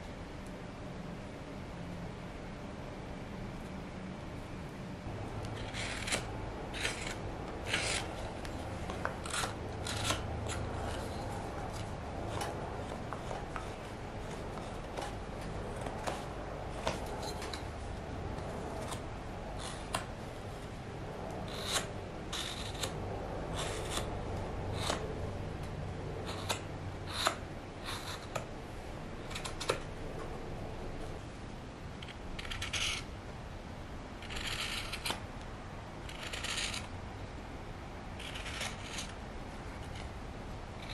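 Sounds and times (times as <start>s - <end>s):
steady low hum: 0.0s - 40.9s
knife slicing wood shavings: 5.6s - 13.8s.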